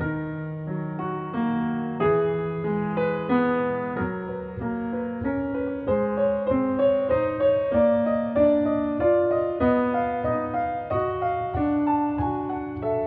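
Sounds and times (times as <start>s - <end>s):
piano music: 0.0s - 13.0s.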